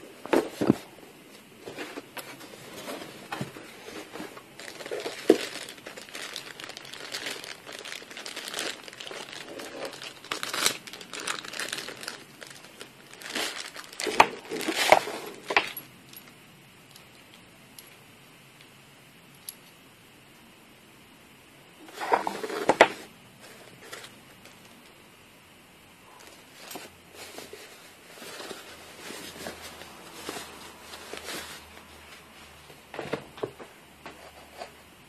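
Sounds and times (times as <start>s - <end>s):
plastic wrapping crinkling: 1.6s - 15.8s, 26.1s - 33.6s.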